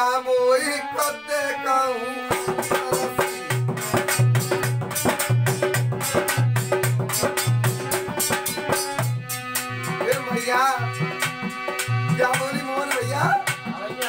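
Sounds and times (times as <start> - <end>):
harmonium holding a note: 0.0 - 14.0
hand drum playing quick rhythm: 2.3 - 14.0.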